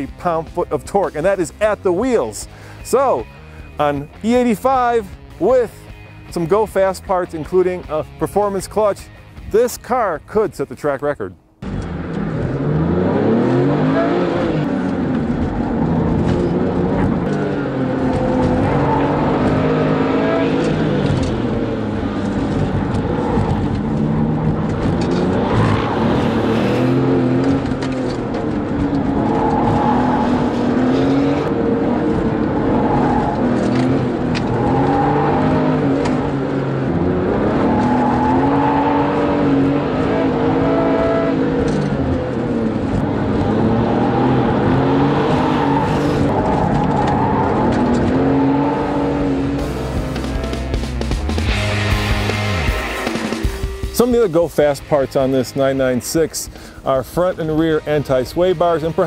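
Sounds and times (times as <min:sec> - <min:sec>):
sports car engine revving: 0:11.6 - 0:59.0.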